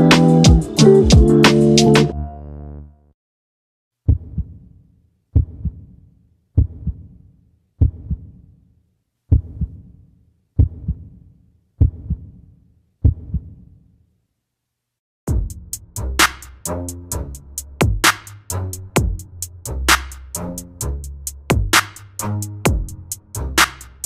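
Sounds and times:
heartbeat thumps: 0.5 - 1.4, 19.0 - 19.3, 21.5 - 21.8, 22.7 - 23.0.

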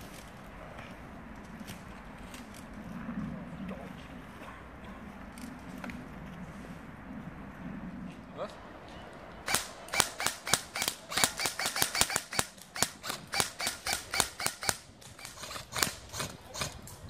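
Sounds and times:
airsoft guns firing: 9.4 - 16.8.

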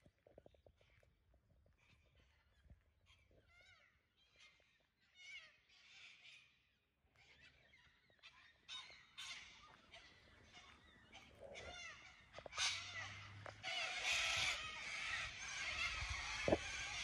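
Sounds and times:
birds calling: 7.3 - 17.0.

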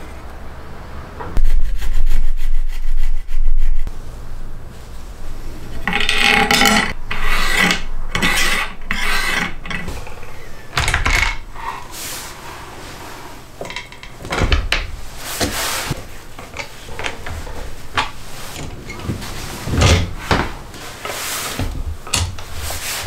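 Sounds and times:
wooden jig rasping and rubbing: 5.7 - 10.5.

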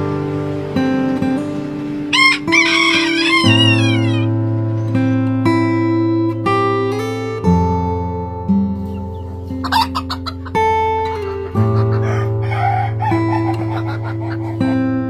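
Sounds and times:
acoustic guitar music: 0.0 - 15.0
chickens clucking: 1.6 - 4.3, 8.8 - 15.0
rooster crowing: 2.1 - 4.3, 9.6 - 10.5, 11.8 - 14.8.

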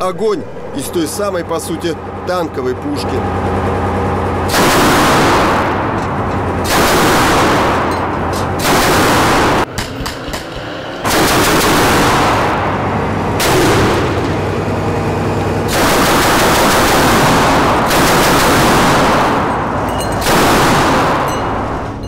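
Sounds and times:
automatic cannon firing bursts: 4.3 - 9.7, 11.0 - 14.6, 15.6 - 21.9.

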